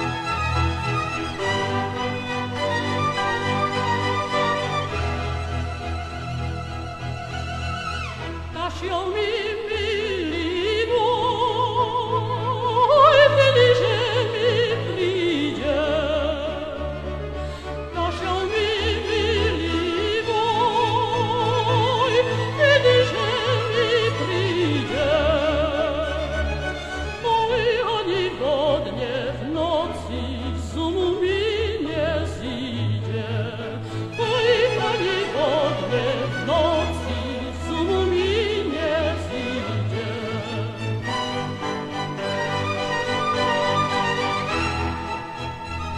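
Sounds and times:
orchestral accompaniment: 0.0s - 45.9s
woman singing operatically: 8.5s - 16.9s, 17.9s - 26.5s, 27.2s - 40.8s.

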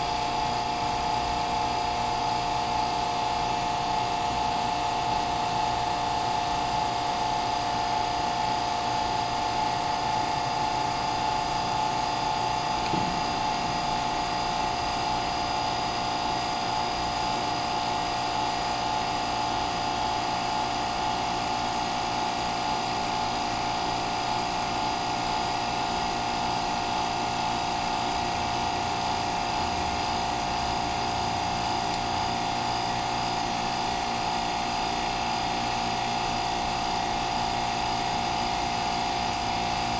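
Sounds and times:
hydraulic pump whining: 0.0s - 18.0s.

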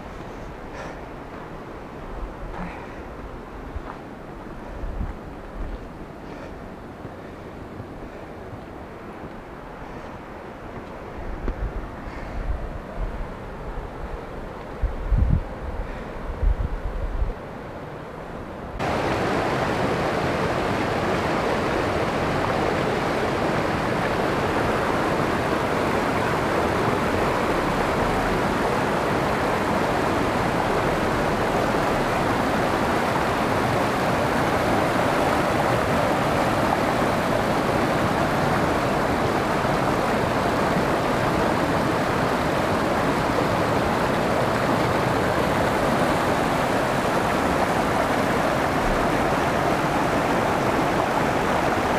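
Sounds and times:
river rushing over rocks: 18.7s - 51.9s.

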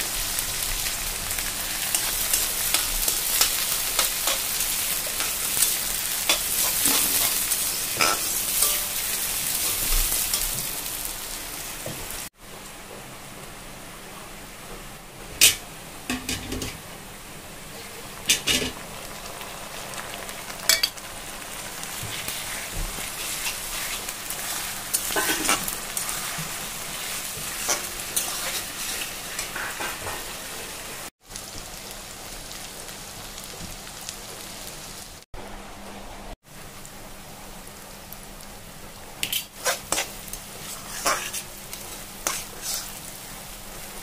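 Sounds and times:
onions sizzling in hot oil: 0.0s - 44.0s
metal spatula scraping a wok: 1.8s - 10.6s, 21.9s - 30.4s, 39.2s - 43.1s.

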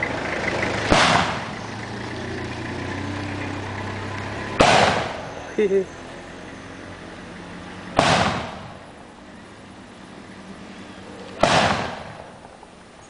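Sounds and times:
bamboo cannon booms: 0.9s - 1.5s, 4.6s - 5.2s, 8.0s - 8.8s, 11.4s - 12.4s.

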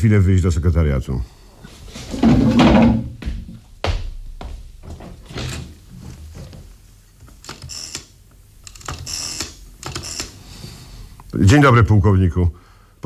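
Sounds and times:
rotary telephone dial clicking: 7.4s - 10.4s.

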